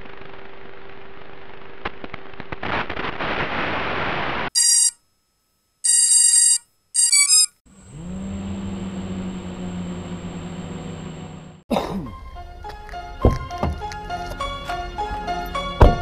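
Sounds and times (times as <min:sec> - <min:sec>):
alarm-like beeping tones: 0:06.1 - 0:07.6.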